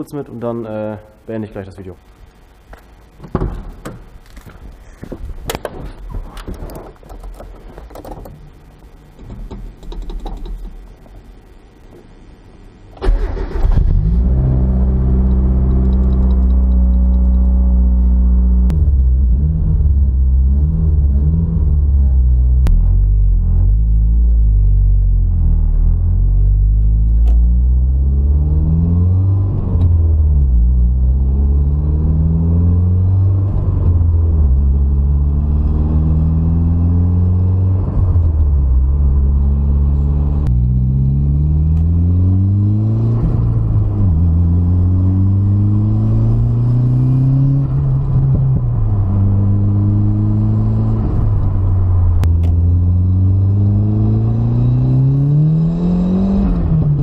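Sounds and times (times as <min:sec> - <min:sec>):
car engine revving in cabin: 0:13.7 - 0:57.0.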